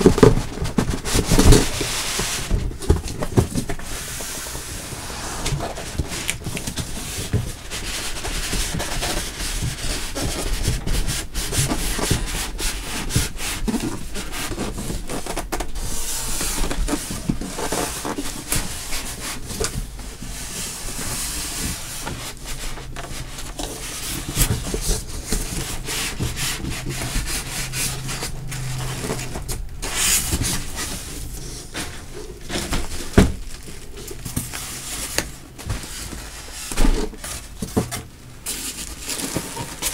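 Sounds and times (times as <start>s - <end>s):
cardboard rubbing and scraping: 0.0s - 39.9s
packing rustling: 13.8s - 39.9s.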